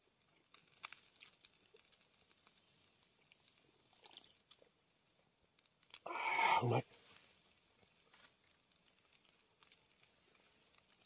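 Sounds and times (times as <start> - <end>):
person chewing food: 3.2 - 4.6.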